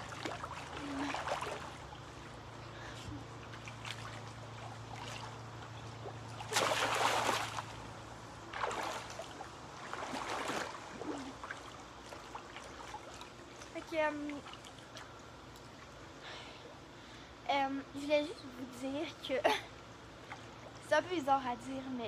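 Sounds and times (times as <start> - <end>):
pool water splashing: 0.0 - 16.9
steady low hum: 0.0 - 22.0.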